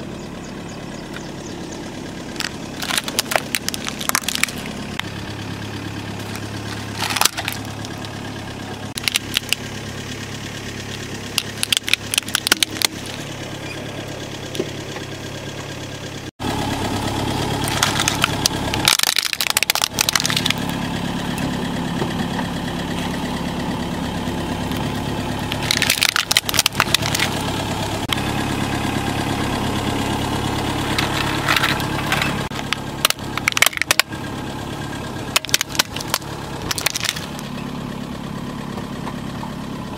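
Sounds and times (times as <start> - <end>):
car engine idling: 0.0 - 39.9
plastic toys cracking: 2.4 - 5.1, 6.2 - 8.1, 9.0 - 9.6, 11.3 - 13.2, 17.6 - 20.7, 25.5 - 27.4, 30.9 - 34.1, 35.3 - 37.4.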